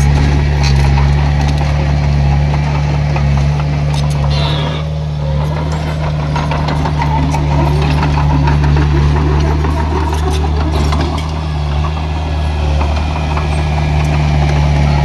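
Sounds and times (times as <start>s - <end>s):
metallic clanks and clicks: 0.0s - 4.6s
diesel engine running: 0.0s - 15.0s
high squeal: 4.1s - 5.9s.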